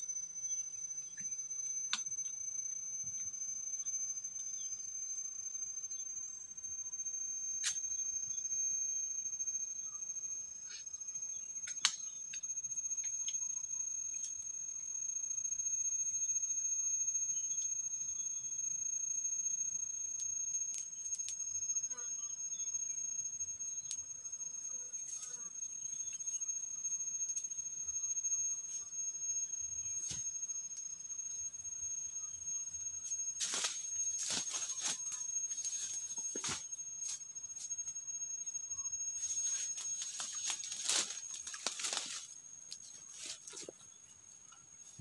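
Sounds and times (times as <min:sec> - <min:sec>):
insects droning: 0:00.0 - 0:45.0
footsteps crunching on dry leaves: 0:33.4 - 0:36.6, 0:39.4 - 0:42.3.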